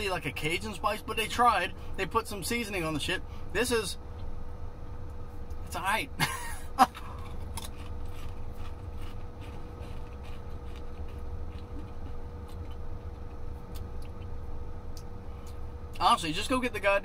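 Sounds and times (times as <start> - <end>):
faint steady whine: 0.0 - 17.0
chewing potato chip crunch: 6.8 - 16.0.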